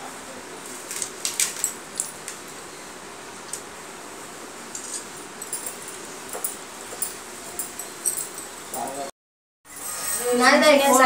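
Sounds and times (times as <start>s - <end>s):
bangles clinking: 4.8s - 9.1s.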